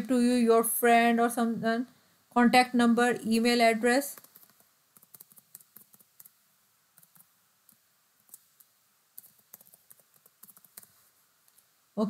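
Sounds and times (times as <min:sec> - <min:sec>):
computer keyboard typing: 0:04.1 - 0:06.4, 0:07.0 - 0:11.6.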